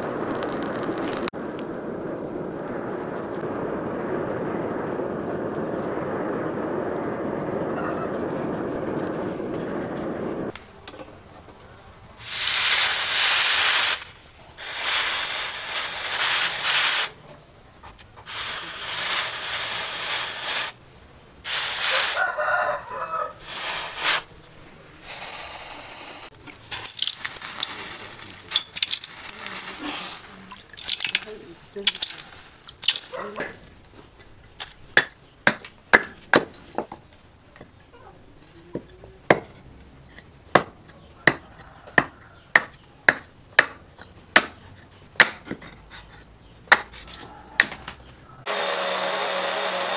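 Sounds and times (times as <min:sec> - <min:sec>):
hot metal sizzling in water: 0:00.0 - 0:01.3, 0:12.2 - 0:17.2, 0:18.3 - 0:20.8, 0:21.5 - 0:22.5, 0:25.0 - 0:33.4
forge rushing: 0:00.0 - 0:10.5, 0:26.2 - 0:33.6
rooster crowing: 0:07.7 - 0:08.2, 0:21.9 - 0:23.4, 0:41.2 - 0:42.5
water splashing: 0:26.4 - 0:33.4.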